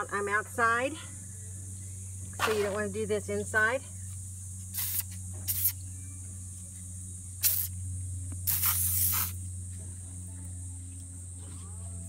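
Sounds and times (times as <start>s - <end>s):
spray atomizer hissing: 4.7s - 5.8s, 7.4s - 7.8s, 8.4s - 9.4s.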